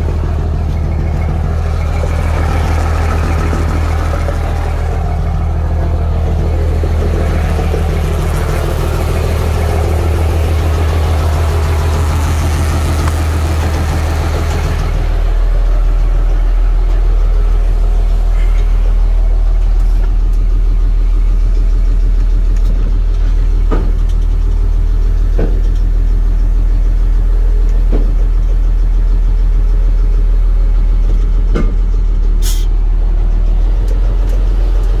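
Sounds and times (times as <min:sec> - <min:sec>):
diesel truck engine idling: 0:00.0 - 0:35.0.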